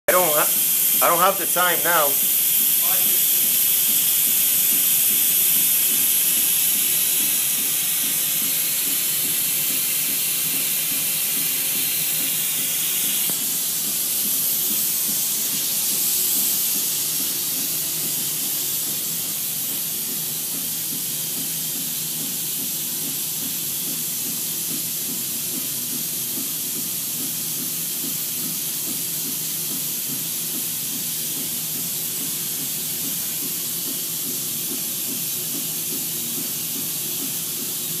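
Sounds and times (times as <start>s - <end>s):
helium gas hissing: 0.1s - 26.6s.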